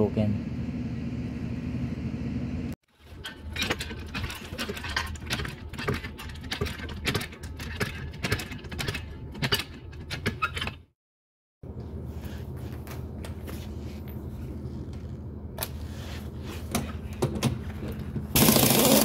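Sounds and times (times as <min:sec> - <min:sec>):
steady low hum: 0:00.0 - 0:02.8.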